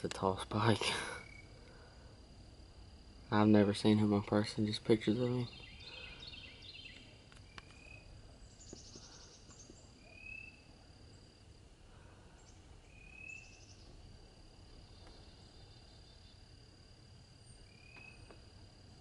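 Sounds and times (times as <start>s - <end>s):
birds calling: 4.9s - 10.7s.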